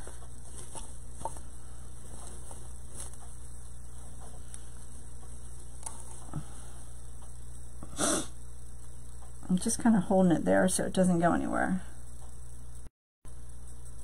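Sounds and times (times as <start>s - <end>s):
faint ticks of materials handled: 0.0s - 7.9s
steady low hum: 0.0s - 14.0s.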